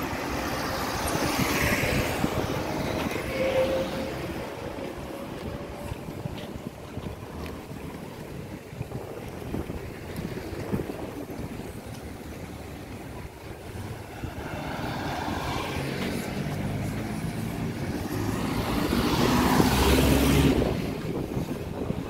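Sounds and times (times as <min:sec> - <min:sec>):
car driving past: 0:14.2 - 0:20.9.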